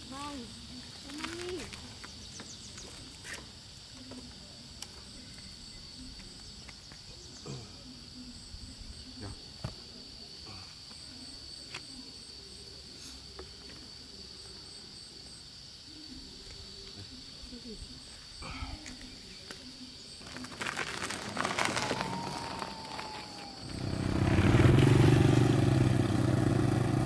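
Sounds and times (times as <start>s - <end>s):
high-pitched insect drone: 15.7s - 25.6s.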